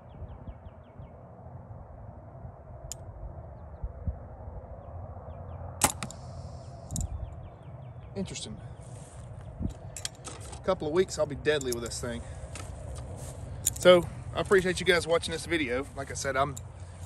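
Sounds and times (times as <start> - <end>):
low wind rumble on microphone: 0.0 - 17.0
bird chirping: 4.8 - 10.0
bow string crack: 5.8 - 7.1.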